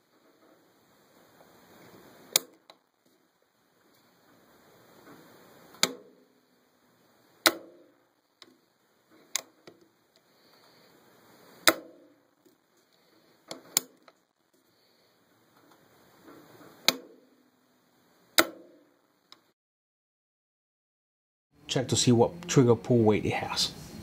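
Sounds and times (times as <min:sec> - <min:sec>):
low handling rustle: 0:00.0 - 0:07.4.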